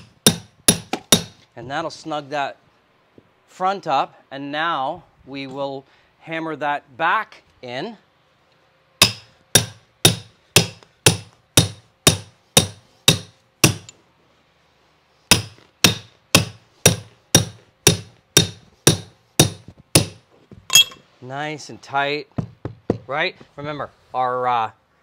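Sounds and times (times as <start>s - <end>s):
hammer striking stair tucker: 0.0s - 1.4s, 9.0s - 13.9s, 15.3s - 20.2s.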